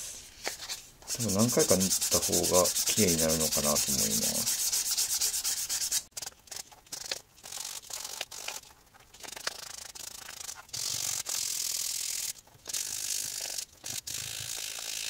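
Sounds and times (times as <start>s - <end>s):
sanding stick rasping on leather: 1.1s - 6.1s.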